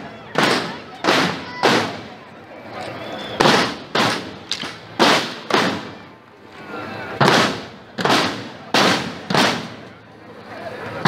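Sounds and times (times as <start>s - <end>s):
marching band drum beats: 0.0s - 2.2s, 3.4s - 6.1s, 7.2s - 9.9s
low crowd chatter: 0.0s - 11.0s.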